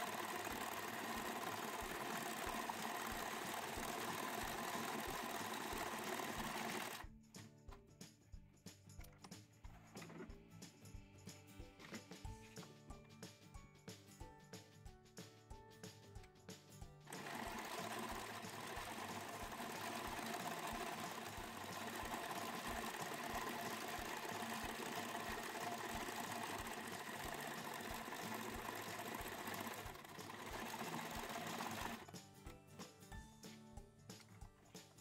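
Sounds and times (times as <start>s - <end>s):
sewing machine stitching: 0.0s - 7.1s, 17.1s - 32.2s.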